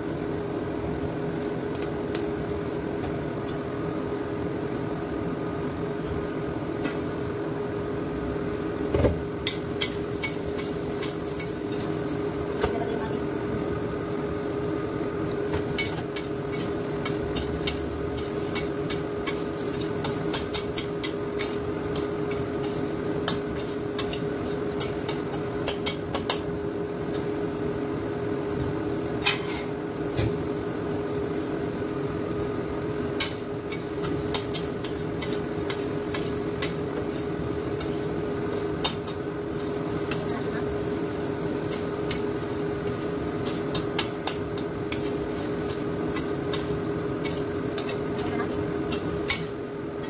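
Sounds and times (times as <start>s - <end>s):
shrimp sizzling in a wok: 0.0s - 4.6s, 8.1s - 50.0s
steady hum: 0.0s - 50.0s
metal spatula scraping a pan: 29.2s - 29.7s.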